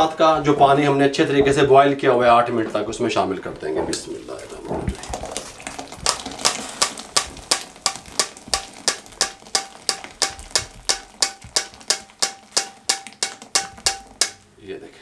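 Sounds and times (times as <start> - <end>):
metal strainer tapping pot rim: 6.1 - 14.4.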